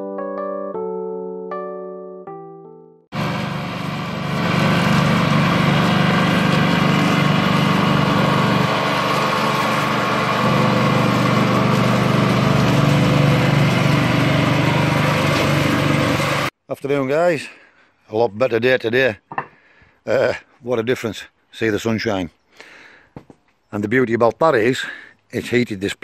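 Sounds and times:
lawn mower engine running: 3.1s - 16.6s.

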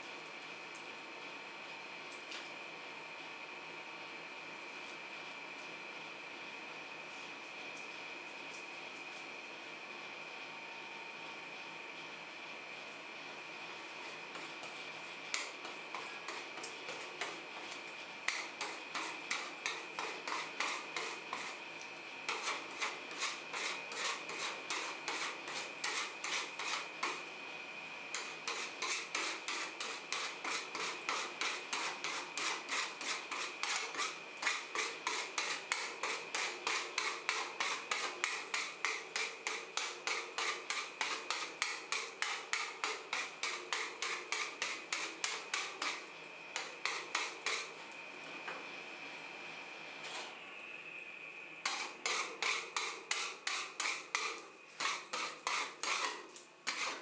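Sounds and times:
metal spatula scraping steel plate: 51.7s - 57.0s.

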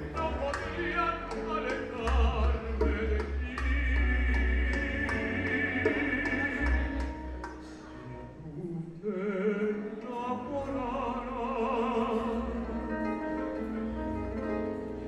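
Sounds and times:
man singing with vibrato: 0.0s - 7.0s, 8.2s - 13.0s
acoustic guitars and keyboard: 0.0s - 15.0s.

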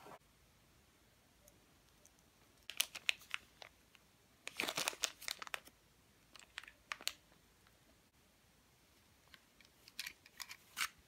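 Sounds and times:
plastic bag crinkling: 2.7s - 3.8s, 4.4s - 5.7s.

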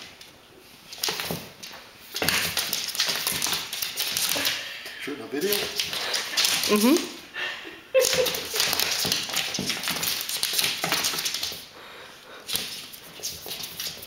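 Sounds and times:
cat claws tapping on wooden floor: 8.0s - 11.6s.

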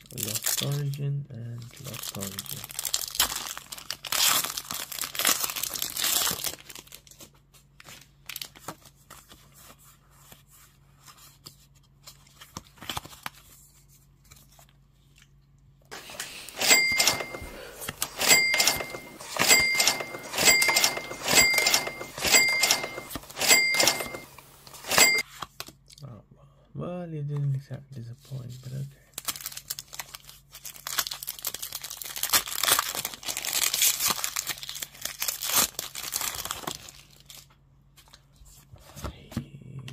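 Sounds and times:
foil wrapper crinkling and tearing: 0.0s - 9.4s, 29.1s - 38.2s
cards rustling and clicking: 4.5s - 15.2s, 15.9s - 25.9s.

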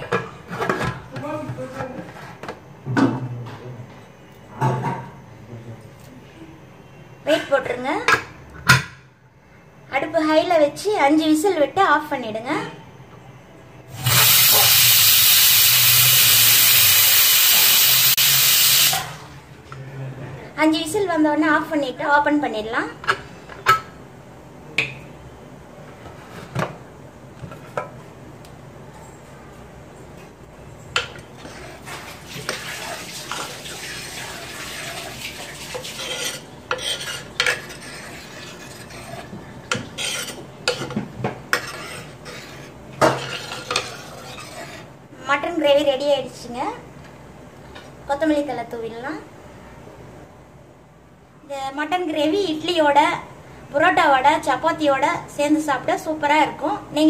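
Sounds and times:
pressure cooker whistling: 13.9s - 19.0s
spoon stirring thick gravy: 34.2s - 44.9s.

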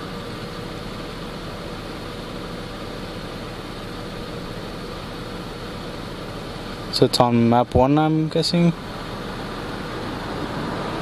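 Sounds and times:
car engine idling: 0.0s - 11.0s
climate control fan hiss: 0.0s - 11.0s.

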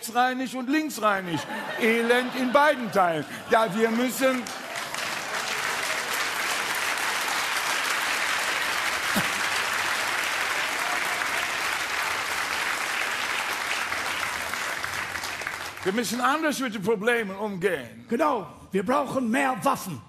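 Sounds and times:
studio audience applauding: 1.5s - 16.5s.

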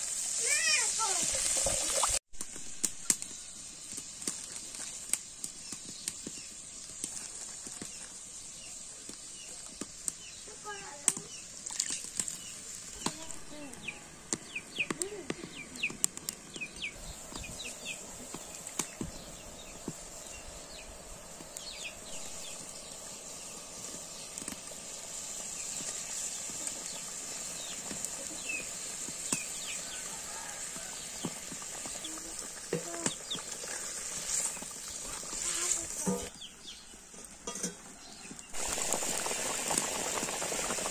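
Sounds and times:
wood fire crackling: 0.0s - 40.9s
birds chirping: 7.8s - 33.6s
curry bubbling in a pot: 38.6s - 40.9s.

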